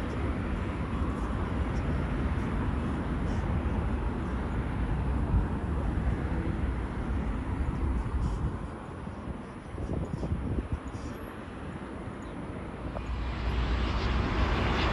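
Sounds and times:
jet engine rumble: 0:00.0 - 0:14.9.

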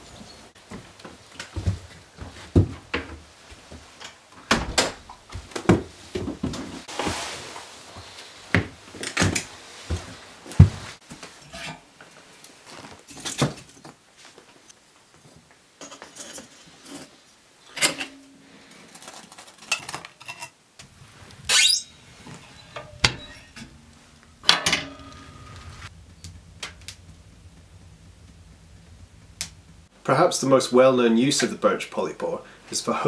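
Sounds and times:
metal stove door clanking: 0:22.7 - 0:25.5.

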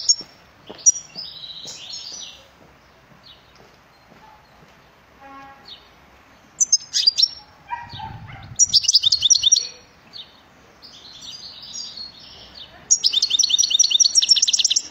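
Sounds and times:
goldfinch twittering: 0:06.6 - 0:09.9, 0:11.0 - 0:14.9.

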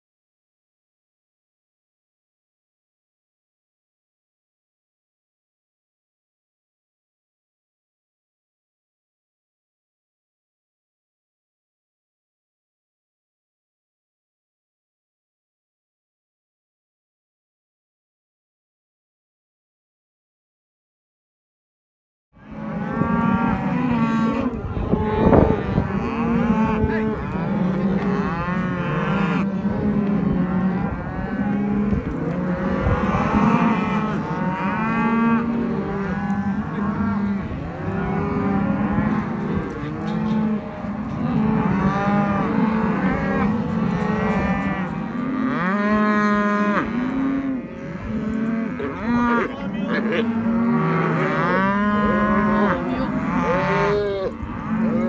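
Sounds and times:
cattle mooing: 0:22.4 - 0:55.0.

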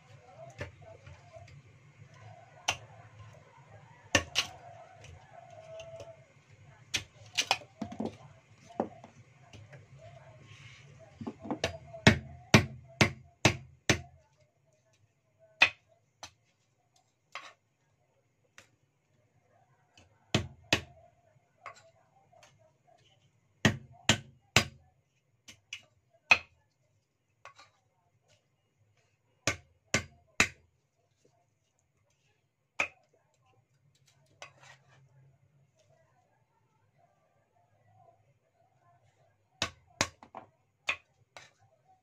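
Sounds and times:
cleaver chopping on wooden block: 0:11.4 - 0:14.1, 0:23.6 - 0:24.8, 0:29.5 - 0:30.6.

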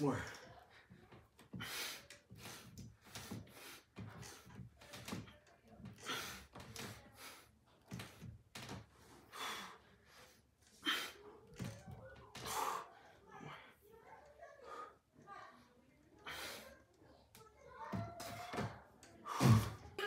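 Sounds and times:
man breathing hard: 0:01.5 - 0:04.6, 0:09.2 - 0:11.3.

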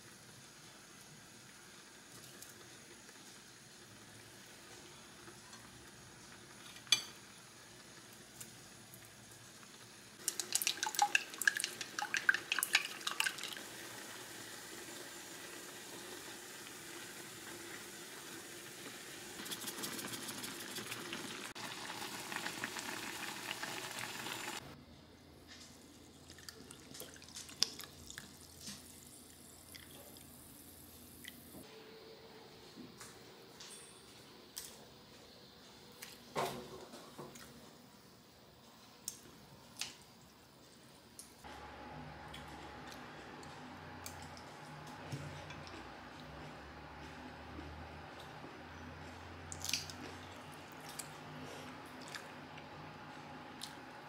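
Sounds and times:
stew bubbling in a pan: 0:07.3 - 0:24.6
drink pouring into a glass: 0:10.2 - 0:13.7.

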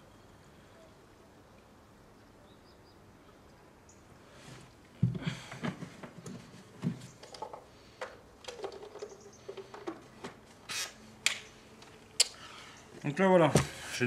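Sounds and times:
small handling clicks and knocks: 0:05.6 - 0:10.4
short hiss: 0:10.6 - 0:11.0.

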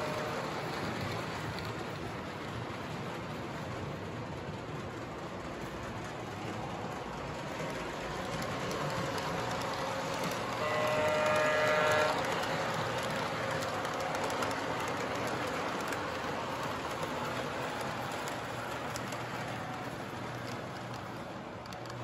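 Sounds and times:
model train horn: 0:00.0 - 0:01.0, 0:10.0 - 0:14.4
model train wheels rumbling: 0:00.0 - 0:22.0.

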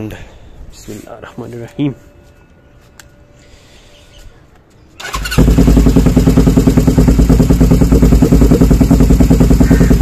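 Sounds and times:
motorcycle starter cranking: 0:05.0 - 0:06.7
motorcycle engine idling: 0:05.0 - 0:10.0.

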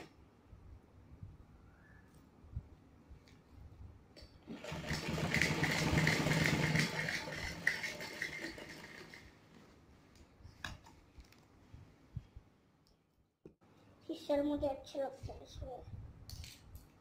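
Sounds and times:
sewing machine stitching: 0:04.4 - 0:09.3.

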